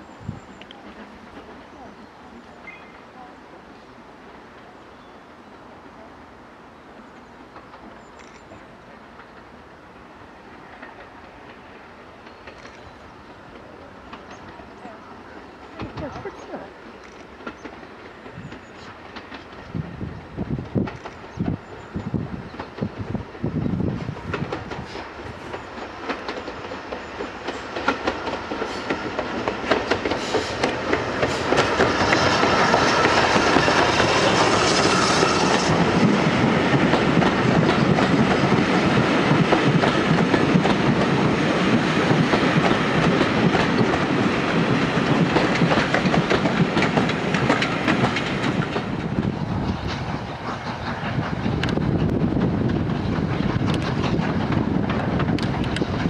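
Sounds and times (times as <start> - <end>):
steam train hissing: 13.1 - 56.0
train wheels clattering over rail joints: 15.8 - 56.0.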